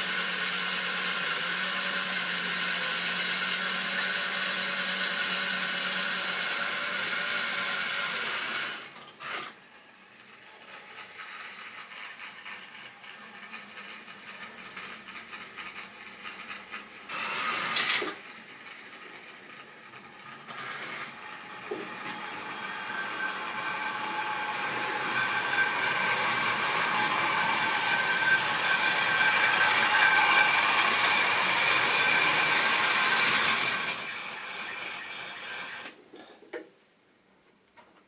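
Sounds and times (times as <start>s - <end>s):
model train motor whining: 0.0s - 36.0s
wheels rolling on rails: 9.0s - 17.1s.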